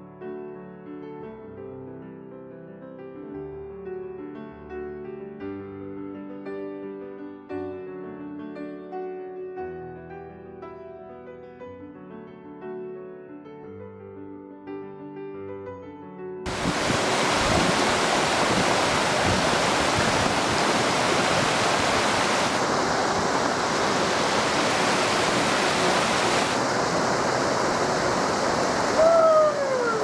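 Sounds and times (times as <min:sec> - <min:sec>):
creek rushing over boulders: 0:16.5 - 0:30.0.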